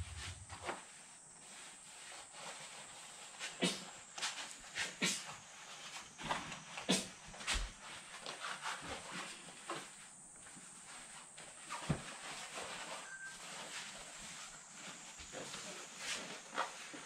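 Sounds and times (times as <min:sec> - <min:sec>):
cloth rustling: 0:00.0 - 0:00.7.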